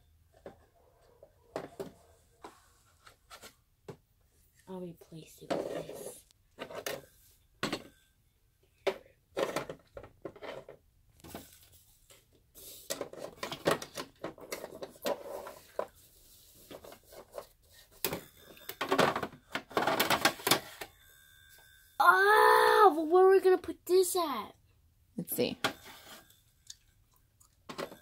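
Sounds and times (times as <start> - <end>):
plastic toy furniture clattering: 5.4 - 8.0, 8.8 - 11.6, 12.8 - 21.0, 27.6 - 28.0.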